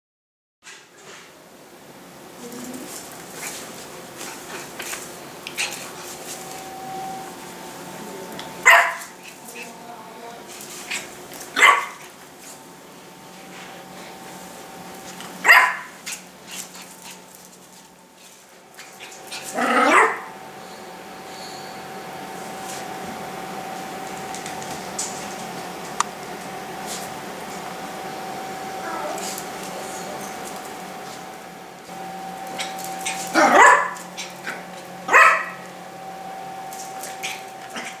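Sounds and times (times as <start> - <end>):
puppy barking: 8.6 - 9.2, 10.9 - 12.1, 15.4 - 16.0, 19.5 - 20.3, 32.5 - 35.7.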